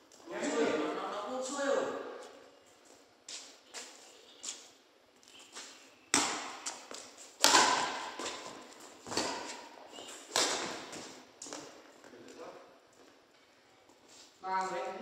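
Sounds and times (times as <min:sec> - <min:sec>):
rackets hitting shuttlecock: 0:06.1 - 0:11.7.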